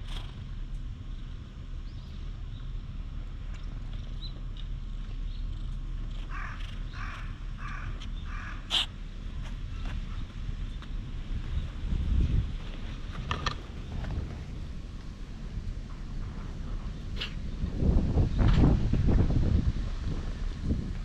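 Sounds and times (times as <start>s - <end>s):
low rumble: 0.0s - 21.0s
crow cawing: 6.3s - 8.9s.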